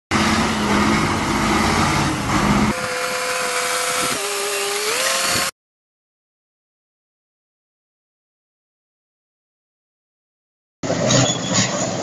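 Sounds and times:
bulldozer whine: 0.1 - 5.5
heavy diesel truck engine: 0.1 - 5.5, 10.8 - 12.0.

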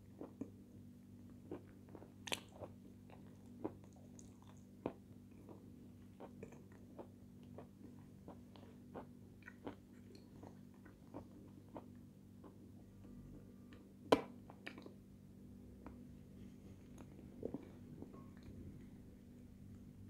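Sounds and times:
faint steady hum: 0.0 - 20.0
person chewing: 1.4 - 12.6, 16.8 - 18.6.

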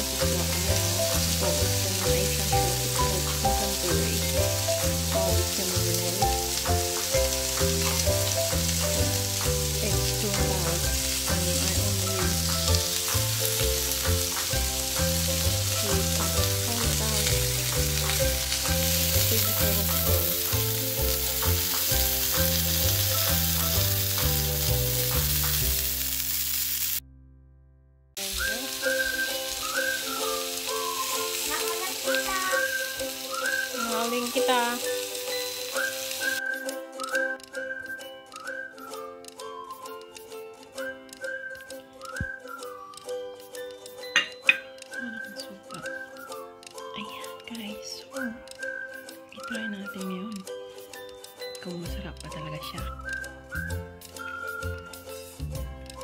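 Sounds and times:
whistled tune: 0.0 - 25.9, 28.2 - 56.0
background music with bass line: 0.0 - 26.1, 51.7 - 56.0
chicken sizzling on griddle pan: 0.0 - 27.0, 28.2 - 36.7.

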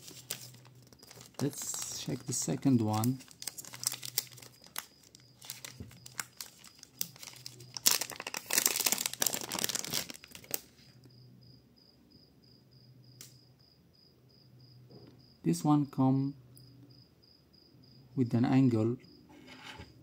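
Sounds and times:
plastic bag crinkling: 0.0 - 10.9.

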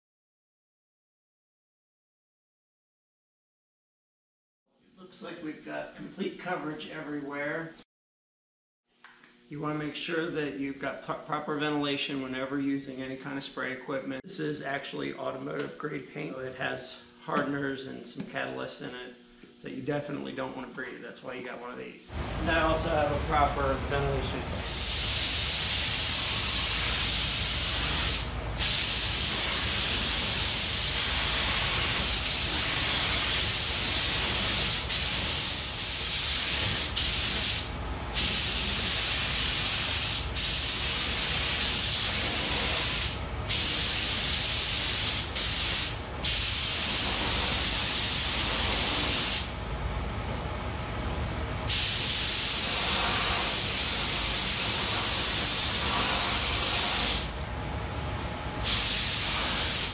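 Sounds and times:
paint spray gun hissing: 24.5 - 49.6, 51.7 - 57.4, 58.6 - 59.9.

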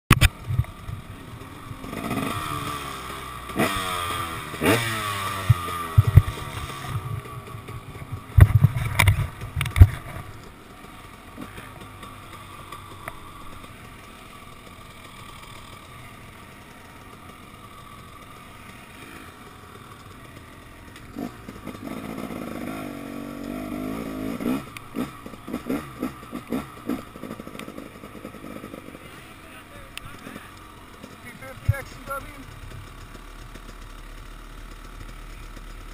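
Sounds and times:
dirt bike engine revving: 0.1 - 35.9
sharp knocks and clatter: 5.4 - 10.3.

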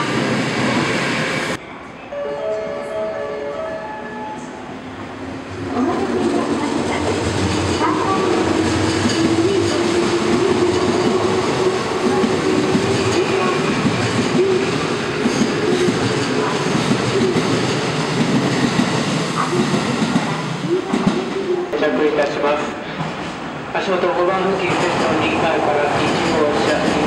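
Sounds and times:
steady train tone: 0.0 - 27.0
train wheels clattering over rails: 6.0 - 21.4, 24.4 - 27.0.

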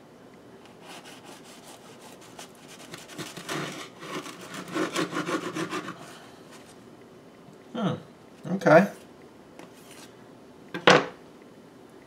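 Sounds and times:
bread knife sawing through crust: 0.7 - 6.2.

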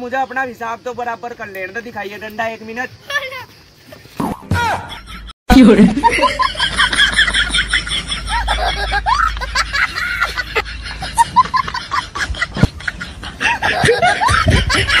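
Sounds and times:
person snickering and chuckling: 4.6 - 15.0.

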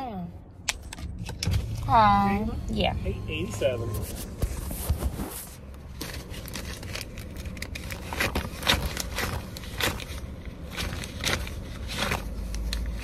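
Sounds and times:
low car rumble: 0.0 - 4.7.

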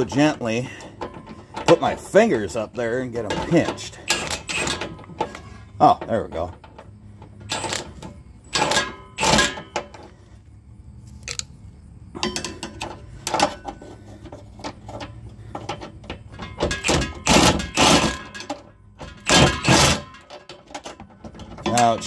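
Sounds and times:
metal clanks of socket and bolt: 11.2 - 11.5
cordless power tool bursts: 16.8 - 18.4, 19.2 - 20.1.

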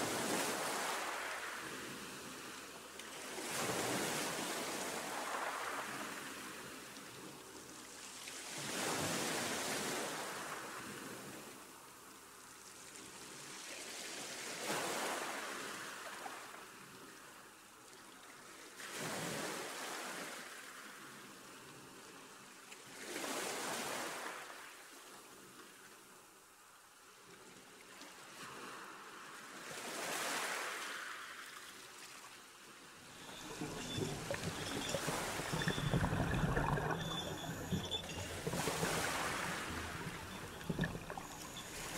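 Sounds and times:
ocean waves washing in: 0.0 - 2.6, 33.0 - 41.9.

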